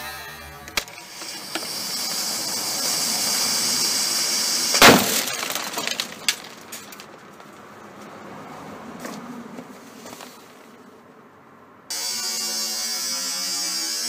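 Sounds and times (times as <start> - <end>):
fuse hissing: 0.8 - 5.4
grenade bang: 4.7 - 6.6.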